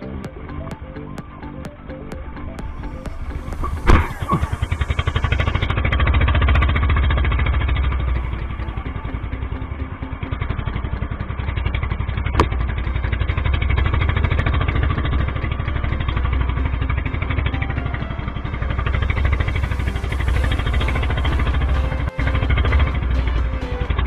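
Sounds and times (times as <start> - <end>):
small boat engine running: 0.0 - 24.0.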